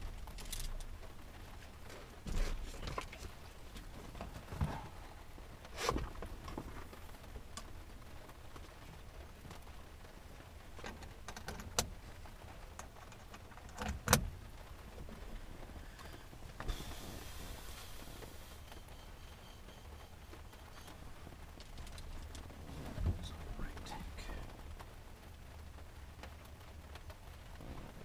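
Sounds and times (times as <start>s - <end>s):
knocks and clicks handling gear: 10.8s - 11.9s.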